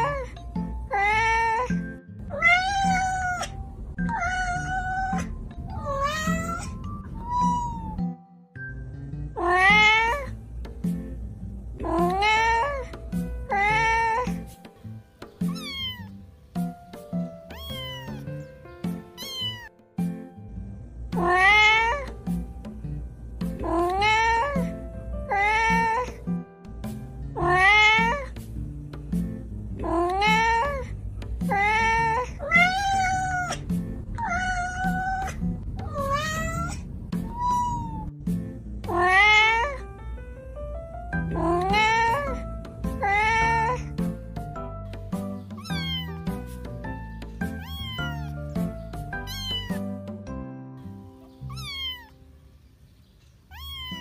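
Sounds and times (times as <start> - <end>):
cat meowing: 0.0 - 8.1, 9.4 - 10.4, 11.8 - 14.4, 15.4 - 16.2, 17.4 - 18.5, 19.2 - 19.8, 21.2 - 22.2, 23.6 - 26.2, 27.4 - 28.4, 29.8 - 38.2, 38.8 - 39.8, 41.3 - 44.0, 45.5 - 46.4, 47.4 - 49.9, 51.4 - 52.2, 53.5 - 54.0
music with steady beat: 10.6 - 11.3, 22.1 - 23.6, 28.3 - 29.6, 33.6 - 34.2, 38.2 - 38.8.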